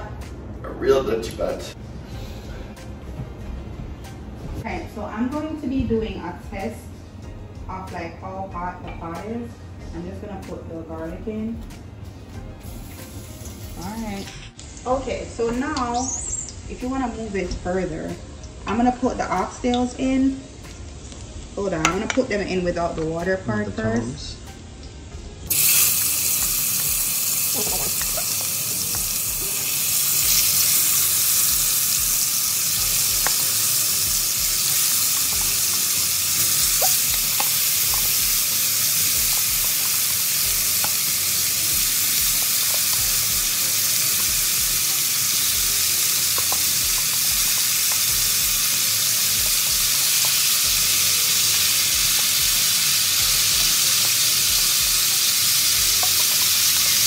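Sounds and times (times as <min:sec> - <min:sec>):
meat sizzling in hot oil: 0:12.6 - 0:16.8, 0:25.5 - 0:57.0.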